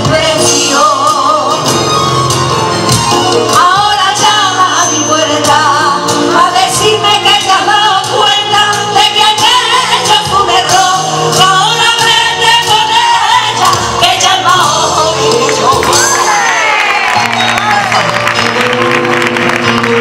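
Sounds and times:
women singing into microphones: 0:00.0 - 0:02.1, 0:03.3 - 0:16.8
live keyboard and band: 0:00.0 - 0:20.0.

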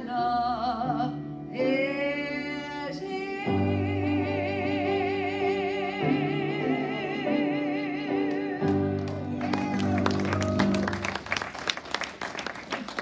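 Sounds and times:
person singing with vibrato: 0:00.0 - 0:10.0.

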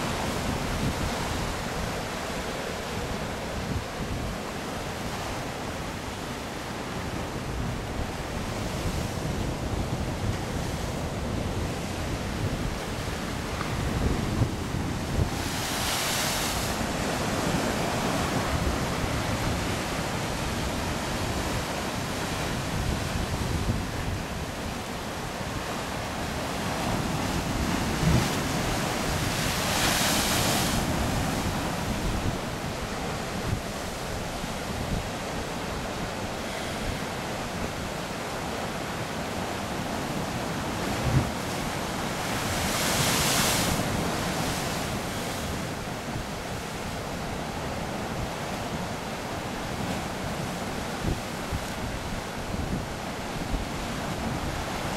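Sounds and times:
wind rumbling on microphone: 0:00.0 - 0:05.5, 0:06.9 - 0:38.8, 0:39.4 - 0:46.6, 0:49.4 - 0:54.9.

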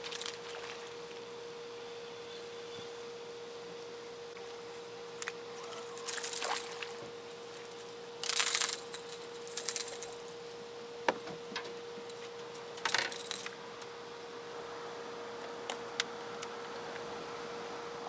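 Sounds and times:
faint steady hum: 0:00.0 - 0:18.0
fishing tackle rattling: 0:08.2 - 0:10.3.

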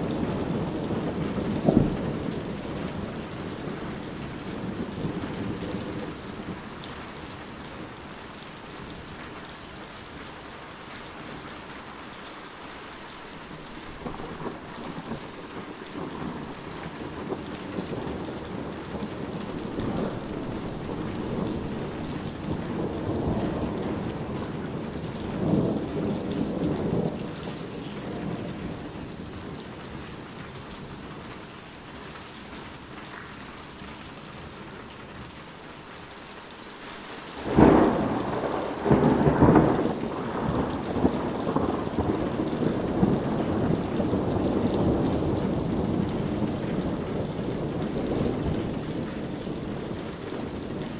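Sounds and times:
rolling thunder rumble: 0:00.0 - 0:08.0, 0:14.0 - 0:30.3, 0:37.4 - 0:50.9
heavy rain falling: 0:00.0 - 0:50.9
loud thunderclap: 0:14.0 - 0:28.9, 0:37.4 - 0:49.0.

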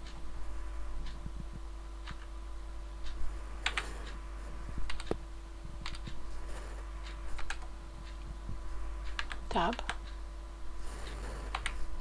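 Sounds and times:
faint steady hum: 0:00.0 - 0:12.0
keyboard typing clicks: 0:03.6 - 0:03.9, 0:05.8 - 0:06.2, 0:07.4 - 0:07.7, 0:09.1 - 0:10.1, 0:11.0 - 0:11.8.

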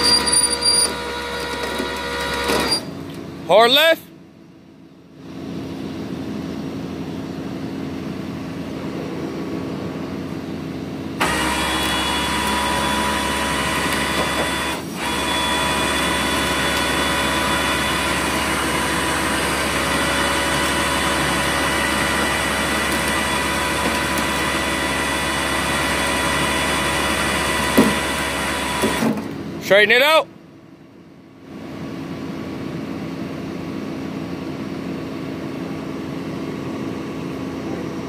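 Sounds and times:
truck engine with winch running: 0:00.0 - 0:03.8, 0:06.4 - 0:29.7.

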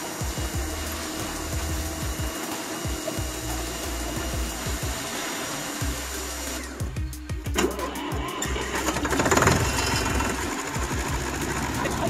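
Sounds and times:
pressure washer spraying: 0:00.0 - 0:12.0.

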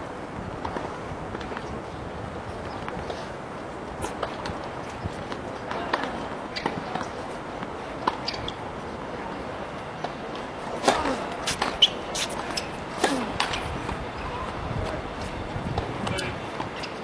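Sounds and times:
tennis ball hits: 0:10.8 - 0:13.7.

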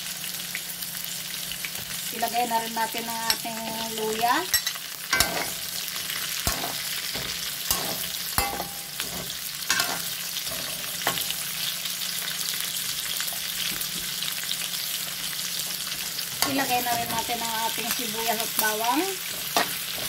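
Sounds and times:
vegetables sizzling in oil: 0:00.0 - 0:20.0
metal skimmer scraping wok: 0:03.2 - 0:11.6, 0:16.0 - 0:20.0.

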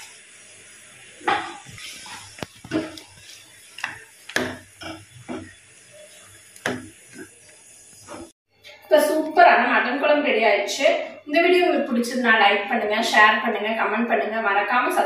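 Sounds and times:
metal ladle scraping a pan: 0:01.2 - 0:08.4.

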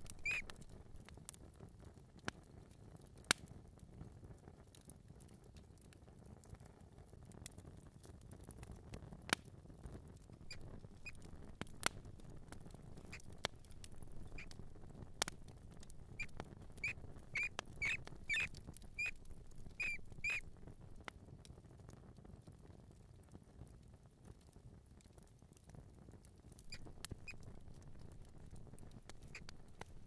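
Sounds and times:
mouse squeaking: 0:00.0 - 0:00.8, 0:10.5 - 0:11.3, 0:13.0 - 0:20.5, 0:26.6 - 0:28.2, 0:28.8 - 0:29.8
small clicks and scratches: 0:00.0 - 0:03.5, 0:07.4 - 0:21.6, 0:26.5 - 0:30.0.

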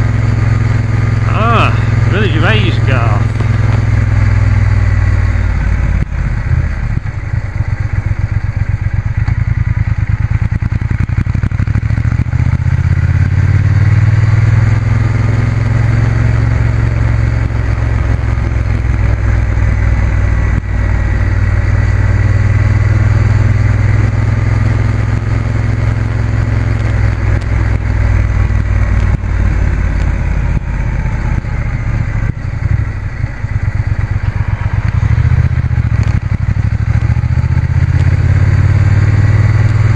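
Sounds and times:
motorcycle engine running: 0:00.0 - 0:39.9
road noise: 0:00.0 - 0:39.9
rushing wind: 0:27.1 - 0:39.9.

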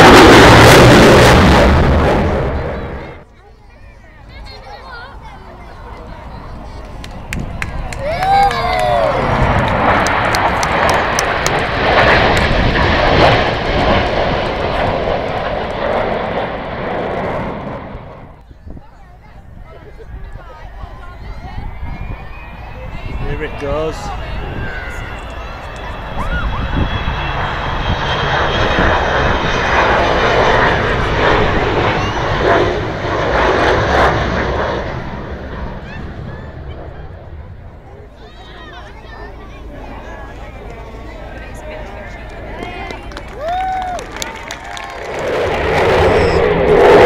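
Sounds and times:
jet roar overhead: 0:00.0 - 0:47.0.

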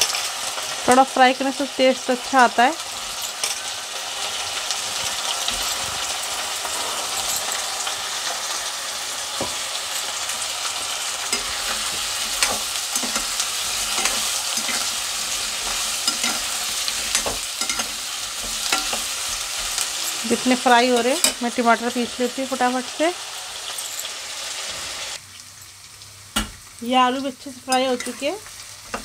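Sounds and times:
potatoes sizzling in oil: 0:00.0 - 0:29.0
metal spatula scraping pan: 0:02.8 - 0:08.7, 0:09.3 - 0:22.7, 0:27.7 - 0:29.0.

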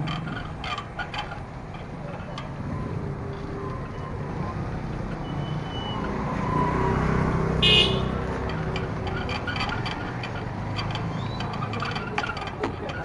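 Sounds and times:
motorcycle horn toot: 0:07.6 - 0:08.2.

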